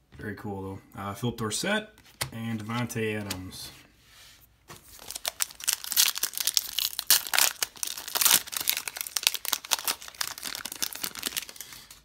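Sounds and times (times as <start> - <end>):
foil wrapper crinkling and ripping: 4.9 - 12.0.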